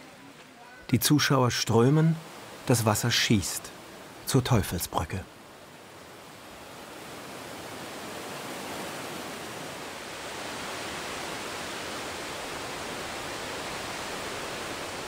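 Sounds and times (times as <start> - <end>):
waterfall rushing: 7.8 - 15.0.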